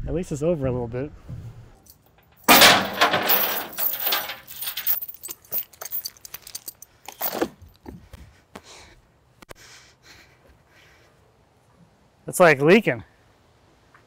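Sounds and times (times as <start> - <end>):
steel chain rattling: 1.9 - 7.6.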